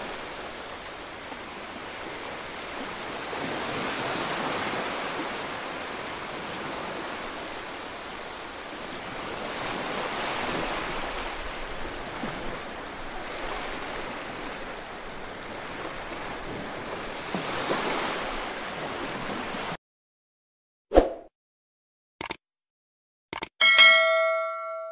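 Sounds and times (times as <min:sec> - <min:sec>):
small waves washing on beach: 0:00.0 - 0:19.8.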